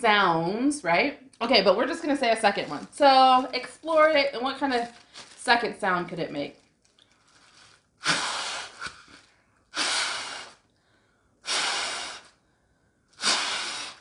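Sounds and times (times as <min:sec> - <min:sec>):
breath puffs into plastic bag: 0:04.9 - 0:05.4, 0:06.9 - 0:12.4, 0:13.1 - 0:14.0.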